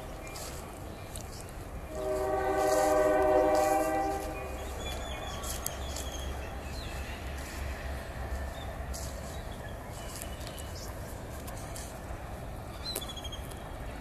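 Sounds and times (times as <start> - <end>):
train horn chord: 1.8 - 5.5.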